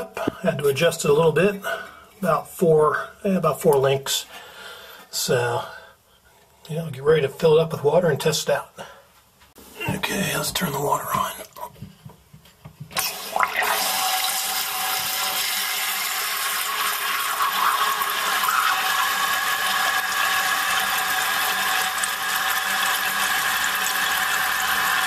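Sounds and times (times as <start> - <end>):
toilet tank refilling: 12.9 - 25.0.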